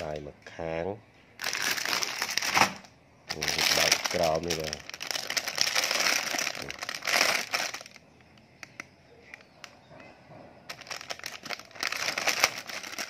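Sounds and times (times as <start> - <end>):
plastic wrapping crinkling: 1.4 - 9.5, 10.7 - 13.0.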